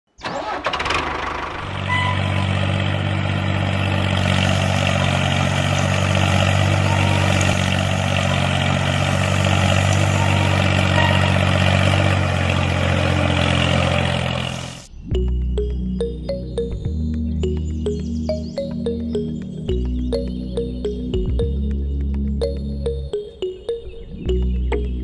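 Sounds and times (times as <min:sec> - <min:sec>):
tractor engine idling: 0:00.2 - 0:14.9.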